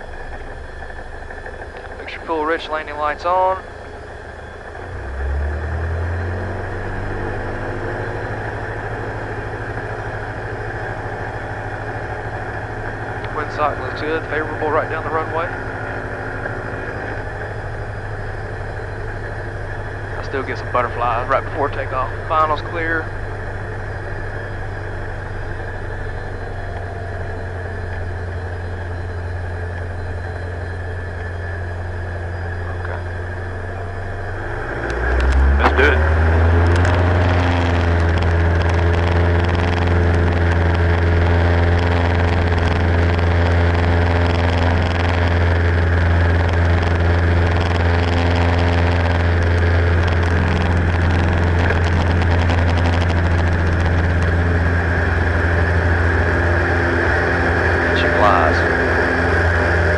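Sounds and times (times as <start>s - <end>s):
propeller plane engine running: 0.0s - 59.9s.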